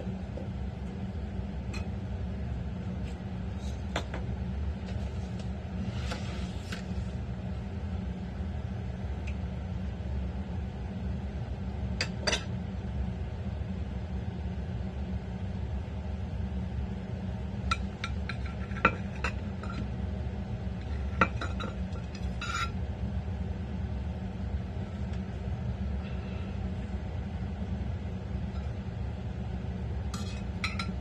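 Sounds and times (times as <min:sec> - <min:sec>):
steady low hum: 0:00.0 - 0:31.0
utensils clinking on dishes: 0:30.2 - 0:31.0.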